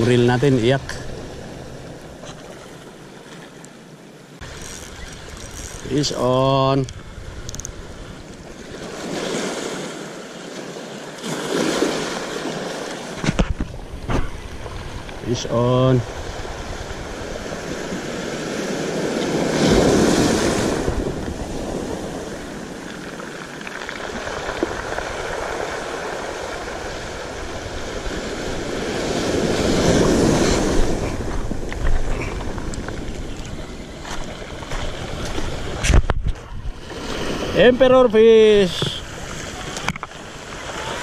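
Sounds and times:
waves washing over pebble beach: 8.5s - 13.2s, 14.4s - 35.9s.

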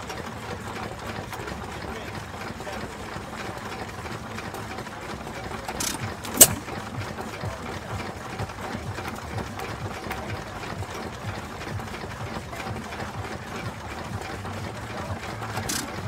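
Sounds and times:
stationary engine running: 0.0s - 16.0s
sharp click: 5.8s - 6.7s.

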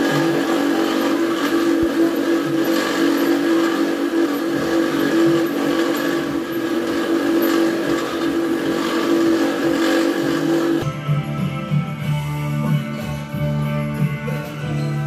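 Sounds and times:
cutting tool on metal: 0.0s - 10.8s
metal lathe whining: 0.0s - 10.8s.

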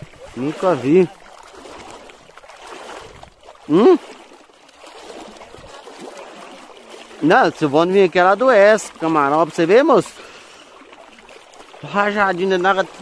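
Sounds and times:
water sloshing from wading: 0.0s - 13.0s
person exclaiming: 3.7s - 4.0s.

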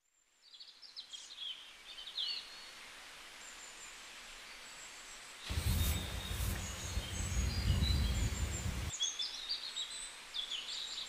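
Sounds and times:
steady hiss: 4.0s - 9.0s
faint thin whistled calls: 5.5s - 8.9s.

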